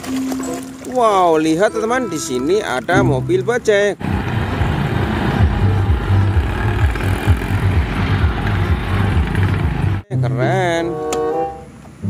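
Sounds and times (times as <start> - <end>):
small engines rumbling: 1.5 - 12.0.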